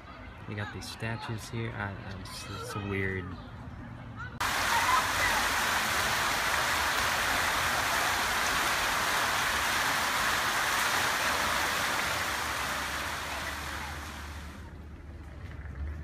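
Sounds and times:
fountain water splashing: 4.4s - 14.7s.

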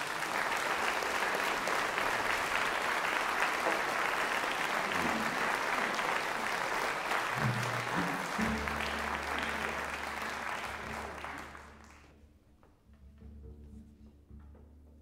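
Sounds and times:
audience applauding: 0.0s - 12.1s
low sustained instrument notes: 7.7s - 15.0s.

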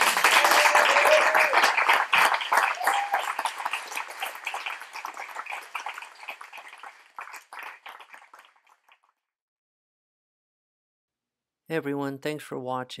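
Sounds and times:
audience applauding: 0.0s - 9.2s.

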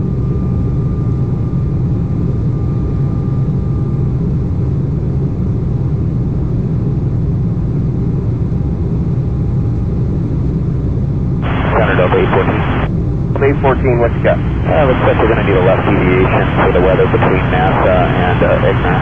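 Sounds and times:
faint steady whine: 11.4s - 19.0s
jet cabin engine rumble: 11.4s - 19.0s.

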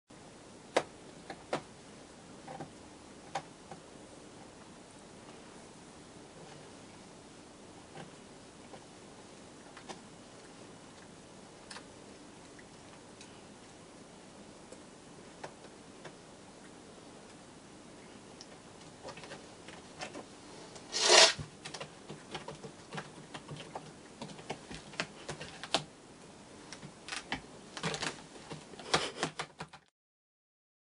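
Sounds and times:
cat claws clicking and scraping: 20.9s - 25.8s.

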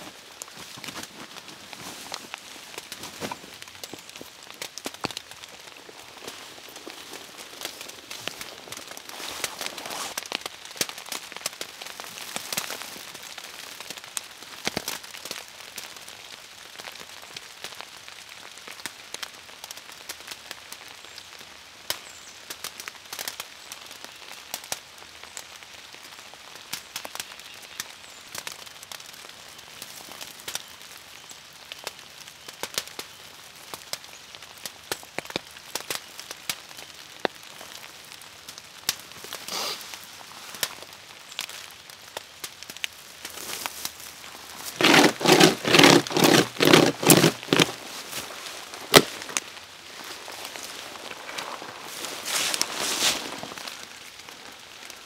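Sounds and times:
rain falling: 0.0s - 55.0s.

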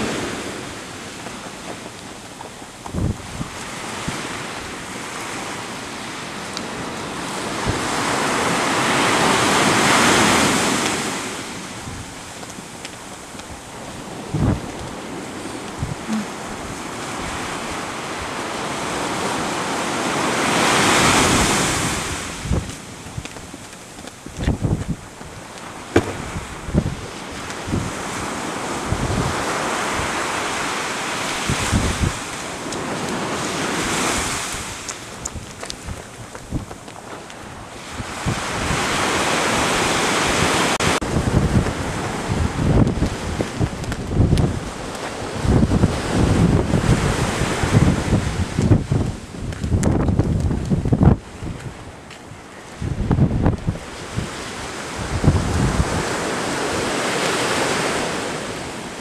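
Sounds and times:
sea surf: 0.0s - 59.0s
wind rumble on microphone: 0.0s - 59.0s.

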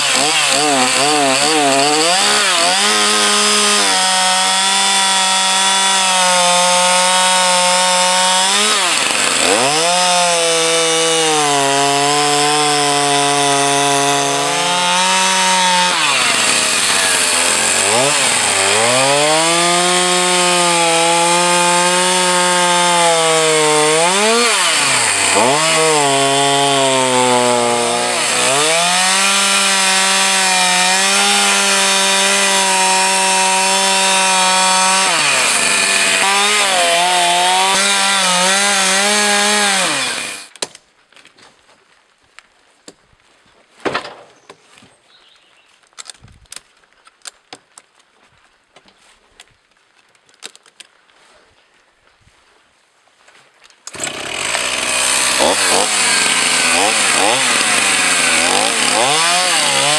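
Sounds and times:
chainsaw cutting into log: 0.0s - 40.7s, 53.8s - 59.9s.

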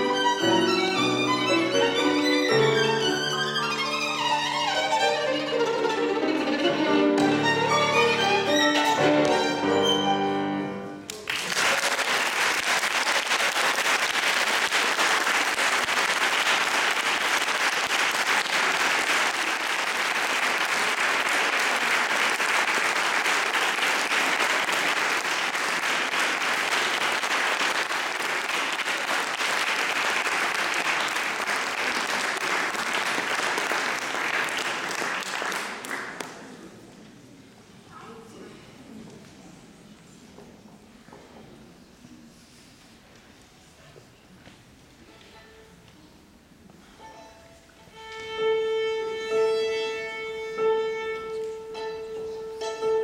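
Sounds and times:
violin and piano: 0.0s - 11.0s, 46.9s - 53.0s
audience applause: 11.1s - 36.6s.

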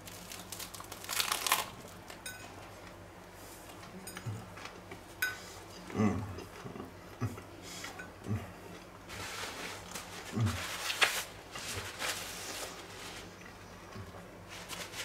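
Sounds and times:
paper towel rustling: 9.1s - 13.4s, 14.4s - 15.0s.

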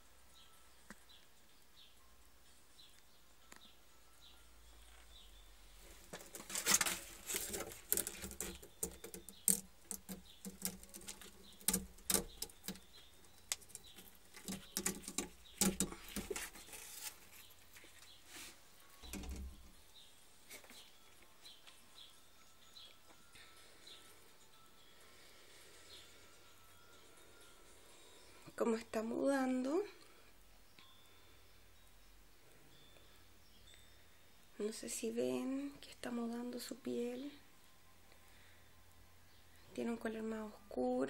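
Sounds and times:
rustling and scratching in plants: 4.9s - 22.1s.

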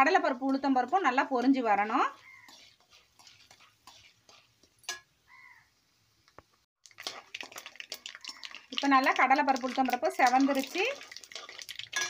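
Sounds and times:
spoon scraping pan: 0.0s - 5.1s, 9.9s - 12.0s
seeds popping in hot oil: 0.0s - 5.6s, 6.2s - 12.0s.

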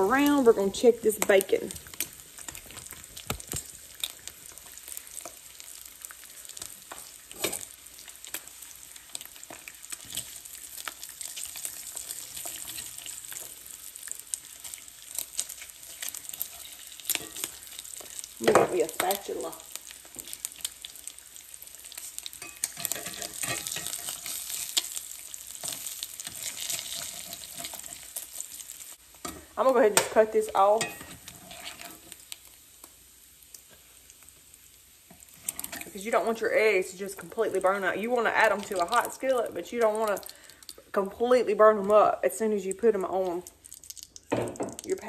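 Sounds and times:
bacon sizzling in a skillet: 0.0s - 45.0s
fork scraping a pan: 6.6s - 8.1s, 15.4s - 18.2s, 21.9s - 25.0s, 25.6s - 28.4s, 30.7s - 32.2s, 35.1s - 36.0s.

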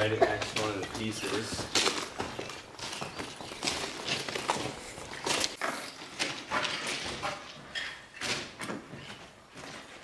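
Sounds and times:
footsteps crunching on ballast: 0.0s - 10.0s.

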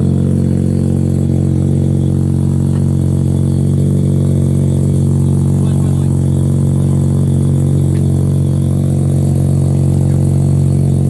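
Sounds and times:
rotary engine idling: 0.0s - 11.0s.

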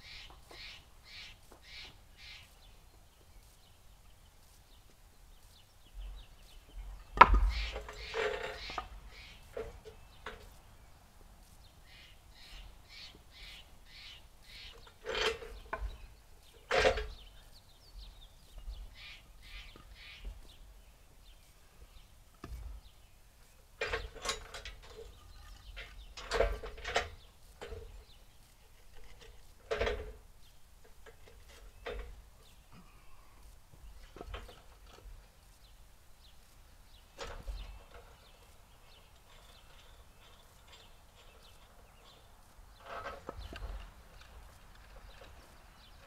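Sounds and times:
bird calling: 0.0s - 2.8s, 5.5s - 10.6s, 11.7s - 20.8s.

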